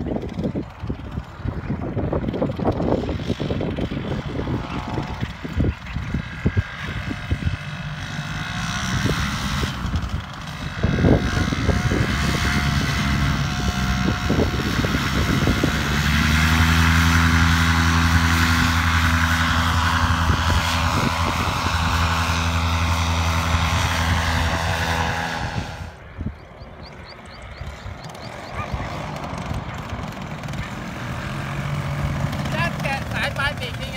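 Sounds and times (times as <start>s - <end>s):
paramotor engine and propeller: 0.0s - 33.9s
wind buffeting microphone: 0.0s - 33.9s.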